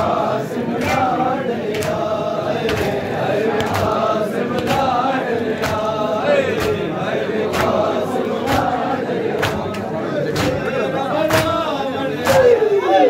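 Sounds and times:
men chanting in unison: 0.0s - 13.0s
chest-beating slaps: 0.8s - 12.6s.

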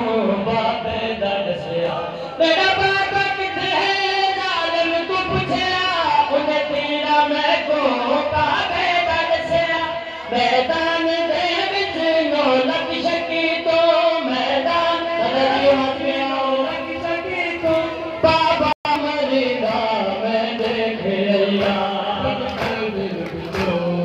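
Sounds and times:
men chanting together: 6.4s - 24.0s.

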